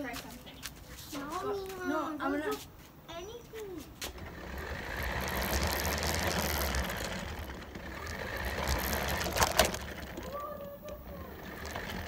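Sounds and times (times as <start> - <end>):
plastic body and wheels rattling: 4.1 - 12.0
toy electric motor whining: 4.2 - 12.0.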